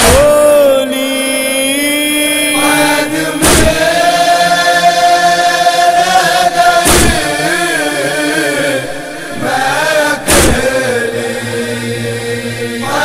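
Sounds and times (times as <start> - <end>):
voices chanting a lament: 0.0 - 13.0
heavy thumps: 3.4 - 3.9, 6.8 - 7.3, 10.3 - 10.8.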